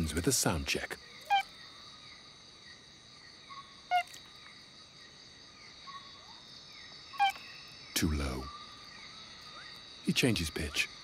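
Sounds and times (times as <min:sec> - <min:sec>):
night chorus of insects and frogs: 0:00.0 - 0:11.0
frog call: 0:01.0 - 0:02.3, 0:03.4 - 0:04.6, 0:05.8 - 0:07.7.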